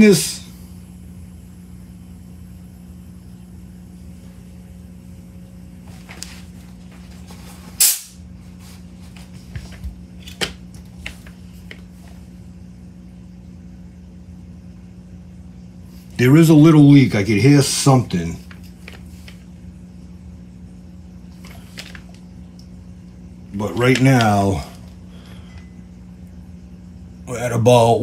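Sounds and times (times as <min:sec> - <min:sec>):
steady low hum: 0:00.0 - 0:28.0
high-pressure air hiss: 0:07.7 - 0:08.2.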